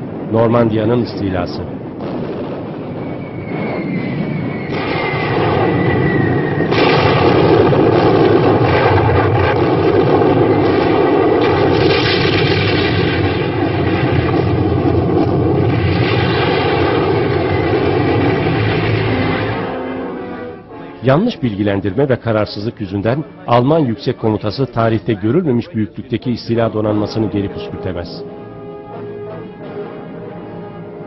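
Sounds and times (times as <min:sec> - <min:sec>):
gunfire: 0:02.0 - 0:03.8, 0:04.7 - 0:19.9
falling whistle: 0:02.8 - 0:06.7
shell bursts: 0:04.7 - 0:06.0, 0:06.6 - 0:20.0.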